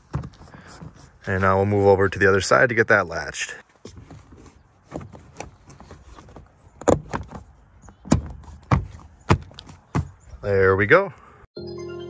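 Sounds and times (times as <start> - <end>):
rubber floor mat knocks and clicks: 0.0 - 1.0, 3.8 - 10.2.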